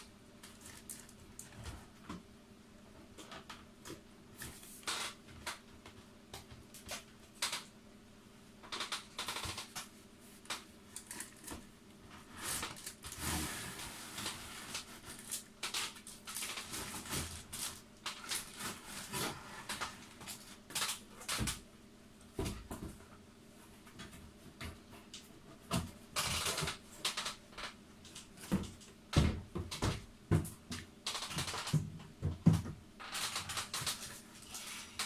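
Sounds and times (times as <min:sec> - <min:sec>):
faint steady hum: 0:00.0 - 0:35.0
plastic bags crinkling: 0:14.2 - 0:19.1.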